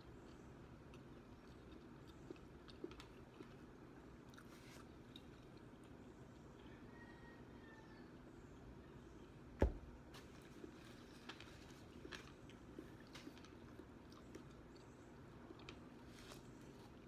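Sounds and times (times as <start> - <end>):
quiet chewing with crisp clicks: 0.0 - 6.9, 10.6 - 17.0.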